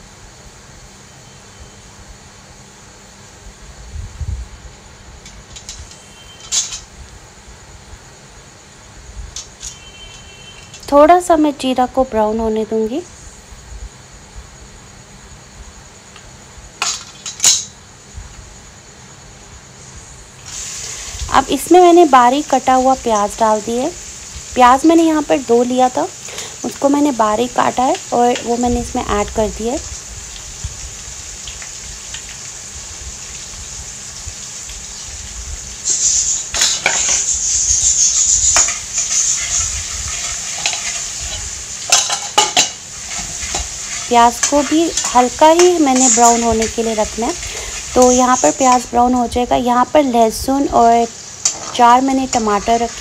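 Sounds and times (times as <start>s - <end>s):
hot oil sizzling: 0.0s - 53.0s
metal spatula scraping a pan: 35.8s - 48.8s
metal utensil clinking on pan: 40.6s - 46.8s.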